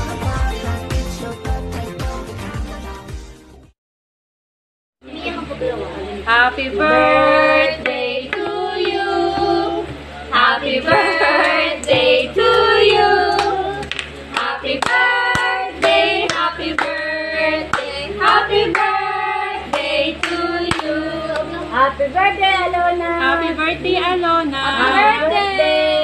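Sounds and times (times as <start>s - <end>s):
women and children singing: 6.3s - 21.9s
hand clapping: 13.3s - 17.0s, 17.7s - 19.0s.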